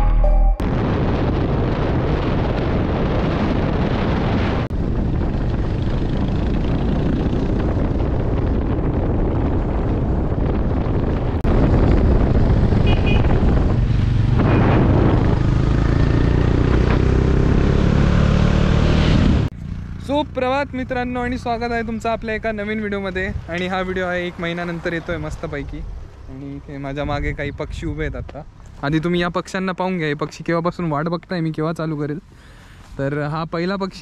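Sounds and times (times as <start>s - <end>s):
wind rush on microphone: 0.6s - 19.5s, 21.8s - 28.6s
motorcycle engines: 4.8s - 8.8s, 9.4s - 27.4s.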